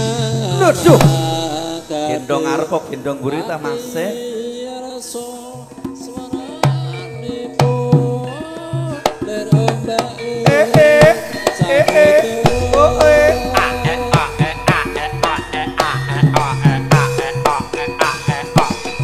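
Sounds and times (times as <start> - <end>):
hand drum strokes: 9.1 - 19.0
wavering high melody line: 10.6 - 18.5
held melody note: 10.8 - 16.6.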